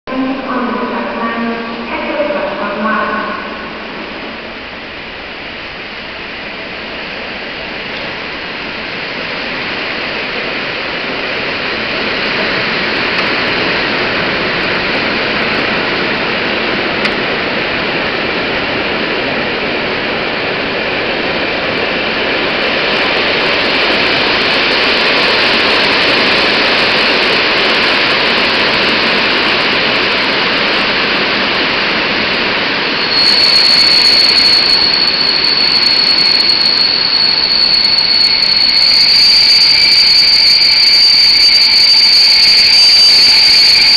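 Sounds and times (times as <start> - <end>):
train wheels rushing on rails: 0.1 - 43.9
high steady squeal: 22.6 - 43.9.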